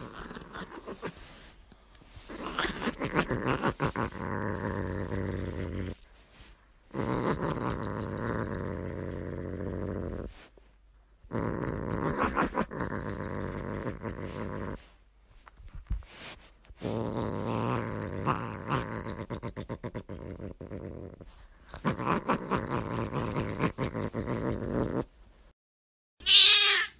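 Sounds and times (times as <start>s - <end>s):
cat growling low: 0.0s - 1.5s, 2.2s - 6.0s, 6.9s - 10.5s, 11.2s - 14.9s, 16.8s - 25.1s.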